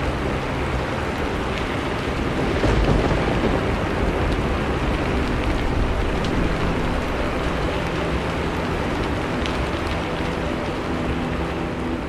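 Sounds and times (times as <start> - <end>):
raindrops ticking: 0.0 - 12.0
steady rain: 0.0 - 12.0
low rumble of thunder: 2.1 - 10.0.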